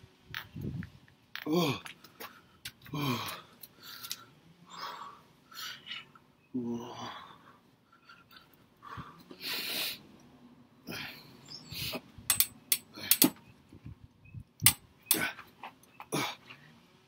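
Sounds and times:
man breathing hard: 6.8 - 10.1.

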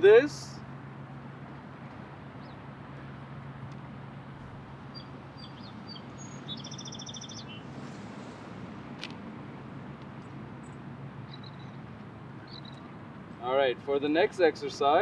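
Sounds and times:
bird chirping and trilling: 4.9 - 7.7, 11.3 - 11.8, 12.4 - 12.8.

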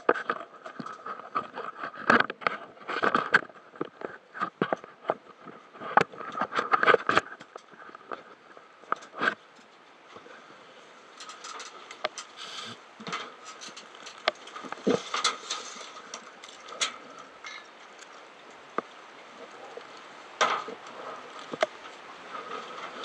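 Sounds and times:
faint steady hiss: 0.0 - 23.0
irregular clicks and knocks: 11.1 - 18.9, 20.3 - 23.0.

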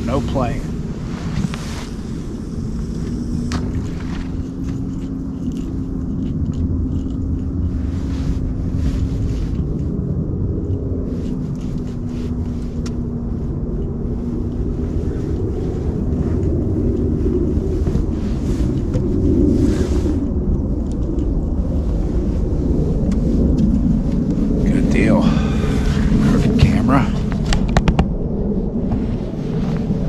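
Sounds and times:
motor running: 0.7 - 7.6.

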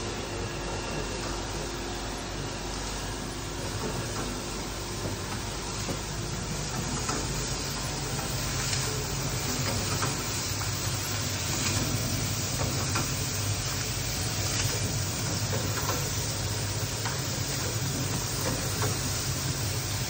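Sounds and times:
cooling fan air rush: 0.0 - 20.0.

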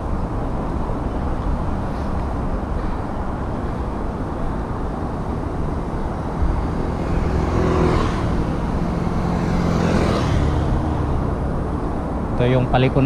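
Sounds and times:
road noise: 0.0 - 13.0
wind rumble: 0.0 - 13.0
motor scooter engine: 5.1 - 12.0.

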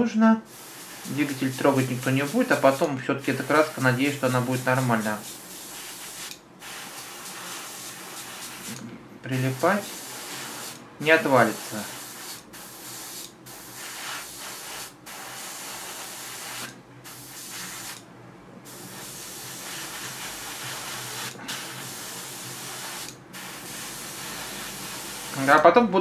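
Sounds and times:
airbrush spraying hiss: 0.5 - 8.8, 9.4 - 18.0, 18.6 - 25.6.

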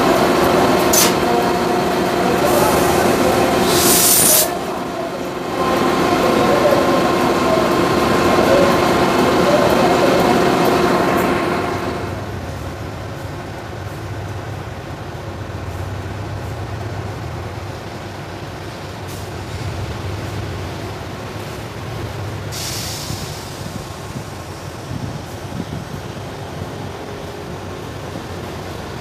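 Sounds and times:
distant diesel engine drone: 0.0 - 29.0
sudden hiss: 2.2 - 5.4, 22.4 - 25.4.

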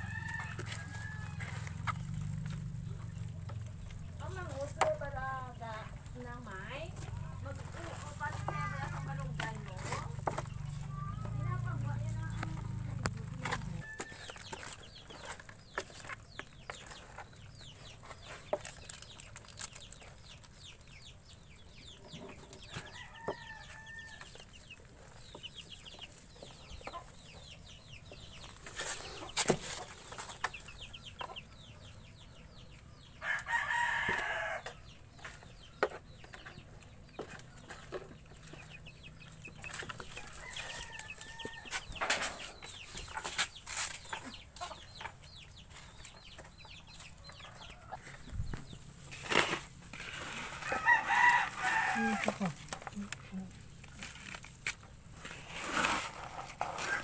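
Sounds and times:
rooster crowing: 0.0 - 1.8, 33.2 - 34.7, 40.2 - 41.9, 50.6 - 52.5
chickens clucking: 0.0 - 57.0.

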